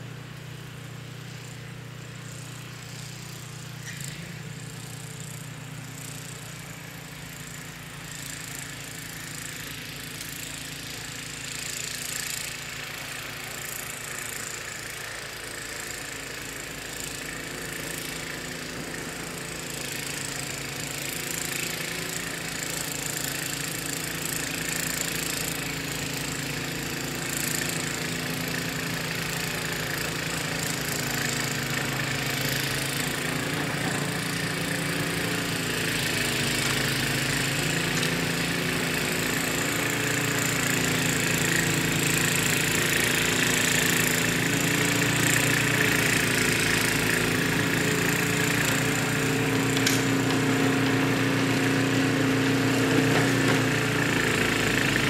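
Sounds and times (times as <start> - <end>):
snowblower engine running: 0.0 - 55.0
auger throwing snow: 27.2 - 55.0.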